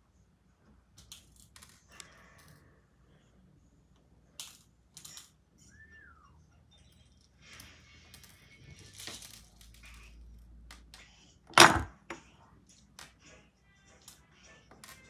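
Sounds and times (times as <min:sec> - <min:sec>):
clay beads clicking and rattling: 0:01.0 - 0:02.6.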